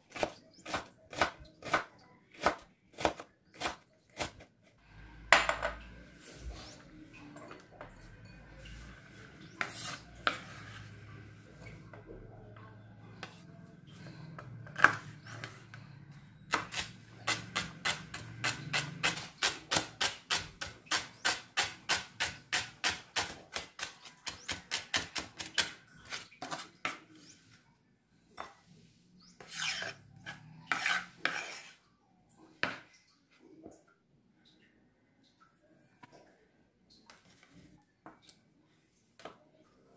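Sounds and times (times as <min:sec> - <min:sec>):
knife scraping board: 0:09.4 - 0:11.0, 0:23.8 - 0:27.2, 0:29.4 - 0:31.8.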